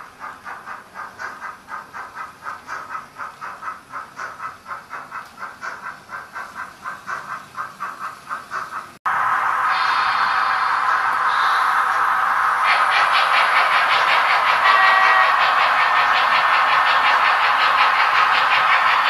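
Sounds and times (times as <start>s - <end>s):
model train wagons clickety-clack: 0.0s - 9.0s, 12.6s - 19.0s
loud steady hiss: 9.1s - 19.0s.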